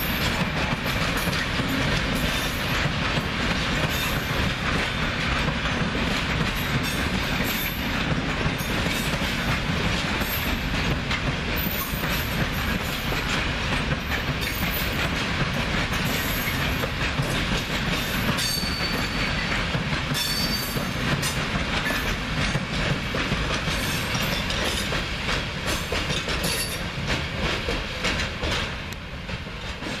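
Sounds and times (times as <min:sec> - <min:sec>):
train wheels clattering over rail joints: 0:00.0 - 0:30.0
high wheel squeals: 0:18.4 - 0:19.4.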